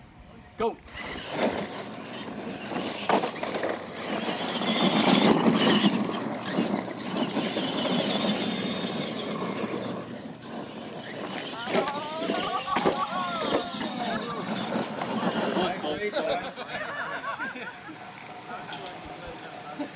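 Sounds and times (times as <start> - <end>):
toy truck motors whining: 0.8 - 16.4
tyres churning dirt: 0.9 - 17.8.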